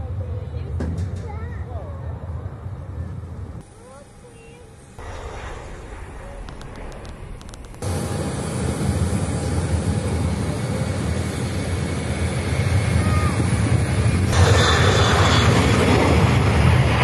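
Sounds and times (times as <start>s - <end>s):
jet engine roar: 1.8s - 17.0s
sharp clicks: 6.4s - 7.8s.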